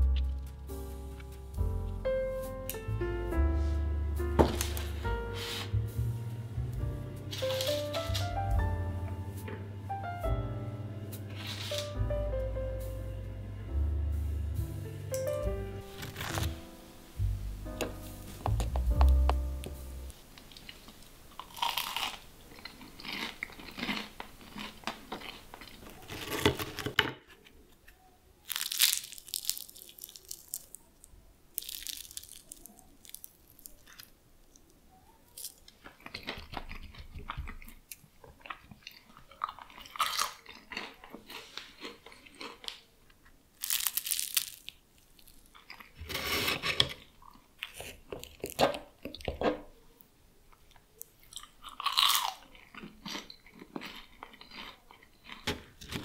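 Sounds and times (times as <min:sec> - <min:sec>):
crunching crisp pastry: 0:07.3 - 0:08.8, 0:11.3 - 0:12.0, 0:15.9 - 0:16.6, 0:20.3 - 0:56.0.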